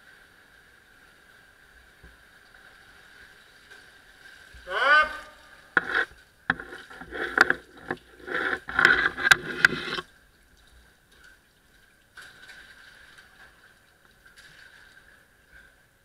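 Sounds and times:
water sloshing and splashing: 0:00.0 - 0:16.0
poles knocking and scraping: 0:05.7 - 0:10.1.

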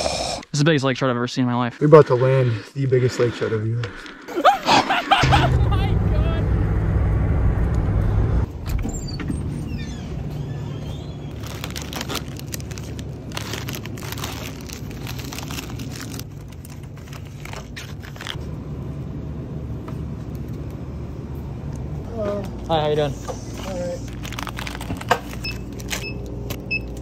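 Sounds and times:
low background hum: 0:04.4 - 0:27.0
road and engine rumble: 0:05.2 - 0:27.0
packages rustling and crinkling: 0:11.3 - 0:18.4, 0:23.4 - 0:26.6.

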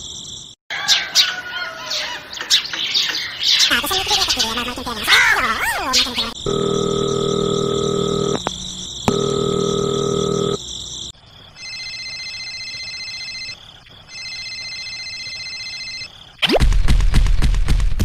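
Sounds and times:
high-pitched phone rings: 0:06.4 - 0:08.5, 0:09.1 - 0:10.6, 0:11.6 - 0:16.1
low buzzing phone rings: 0:06.4 - 0:10.6, 0:11.6 - 0:16.0.

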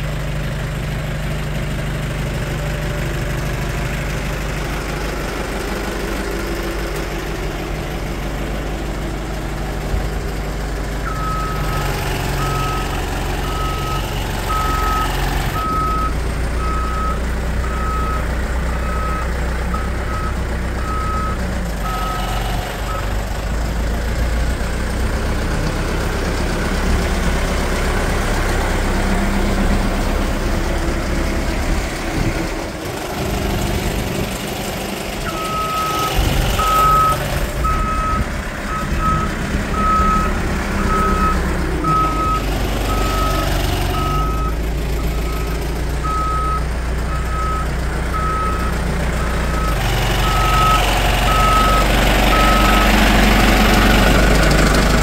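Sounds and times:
diesel engine running: 0:00.0 - 0:55.0
reverse alarm beeping: 0:12.4 - 0:18.2.

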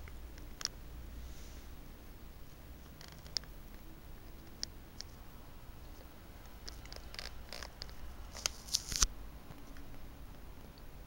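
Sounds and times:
small handling clicks: 0:02.8 - 0:03.8, 0:05.9 - 0:10.0.

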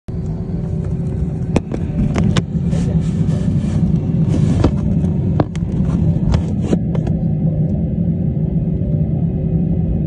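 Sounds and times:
jet engines rumbling: 0:00.1 - 0:10.0.

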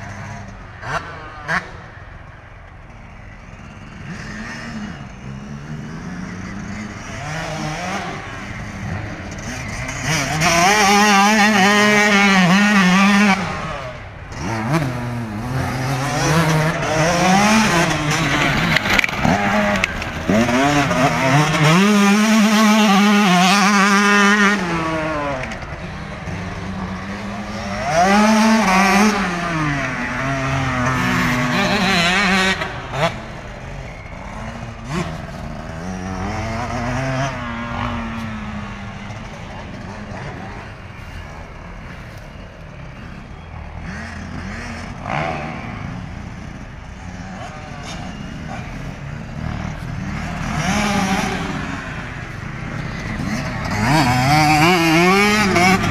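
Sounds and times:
motocross bike revving past: 0:00.0 - 0:02.0, 0:03.2 - 0:55.9.

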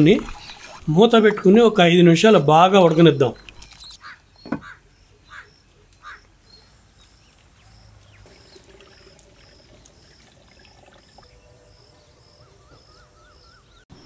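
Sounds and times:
faint bird calls: 0:03.6 - 0:06.8.

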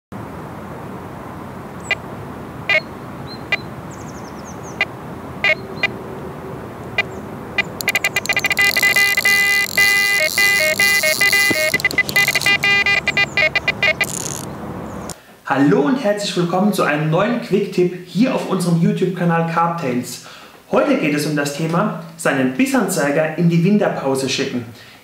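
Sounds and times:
electronic bite alarm beeps: 0:02.7 - 0:02.9, 0:03.5 - 0:03.7, 0:04.8 - 0:06.0, 0:07.0 - 0:14.5.

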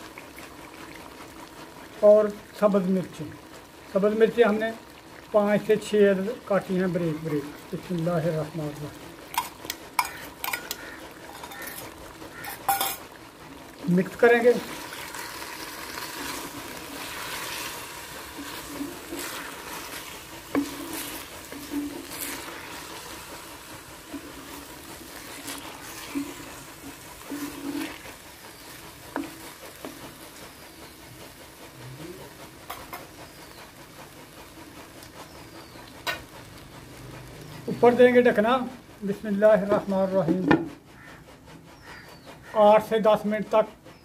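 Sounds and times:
frying sizzle: 0:00.0 - 0:41.2
wooden spoon scraping clay pot: 0:09.2 - 0:13.1, 0:14.1 - 0:31.0.

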